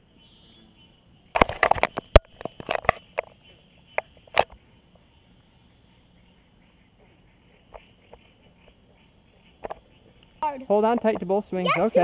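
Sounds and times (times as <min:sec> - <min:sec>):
faint high hiss: 0:00.0 - 0:12.0
clicks and taps on camera: 0:01.4 - 0:03.4.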